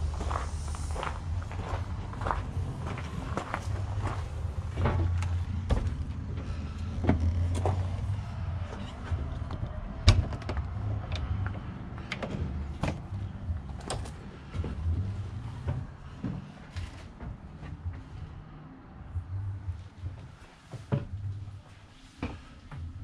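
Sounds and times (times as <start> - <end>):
low rumble: 0.0 - 20.4
footsteps and handling knocks: 1.6 - 18.2.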